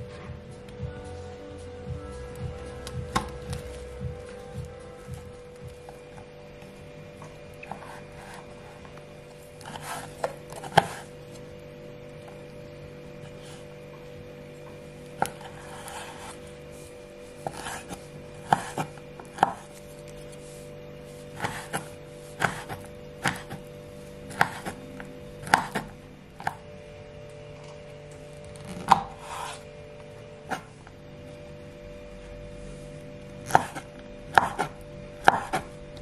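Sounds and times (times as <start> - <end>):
knife chopping on wooden board: 17.4 - 19.8, 21.3 - 23.6, 24.3 - 24.8, 25.4 - 26.6, 33.4 - 35.7.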